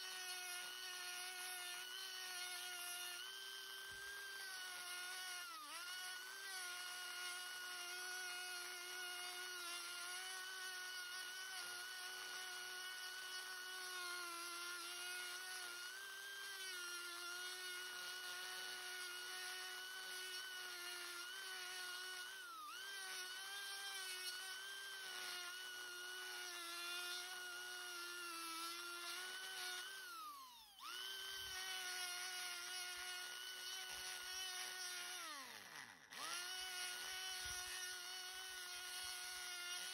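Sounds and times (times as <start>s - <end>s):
rotary tool grinding wood: 0.0s - 39.9s.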